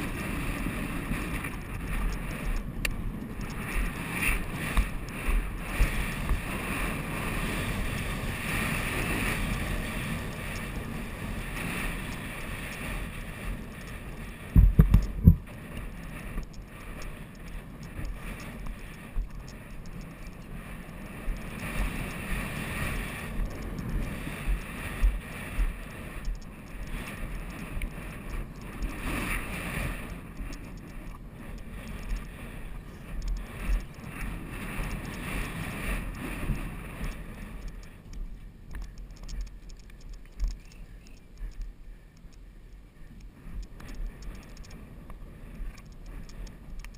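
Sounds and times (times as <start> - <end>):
wind buffeting microphone: 0.0 - 41.8
low thuds from horse movement: 14.5 - 15.5.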